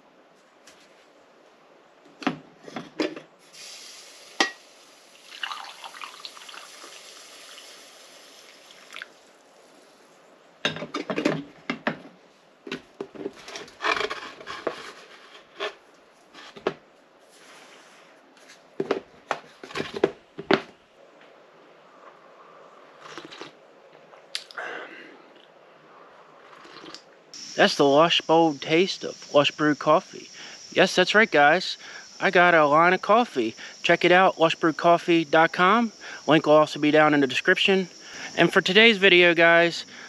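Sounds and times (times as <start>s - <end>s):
coffee pouring into mug: 5.2s - 7.7s.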